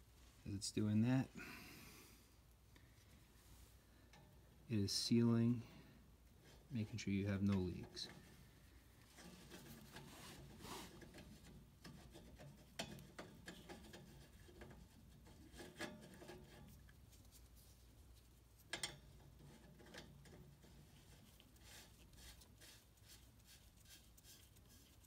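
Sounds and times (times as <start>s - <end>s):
gloved hand rubbing pipe fitting: 9.0s - 25.0s.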